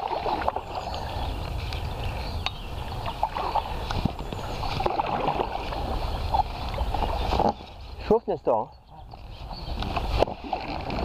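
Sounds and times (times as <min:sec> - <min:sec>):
paddles splashing through water: 0:00.0 - 0:11.0.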